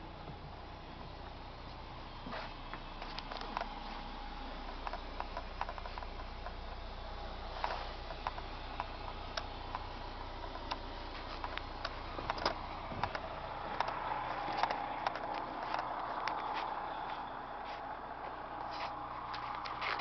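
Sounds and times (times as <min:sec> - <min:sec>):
low steady hum: 0:00.0 - 0:20.0
footsteps on steps: 0:11.1 - 0:20.0.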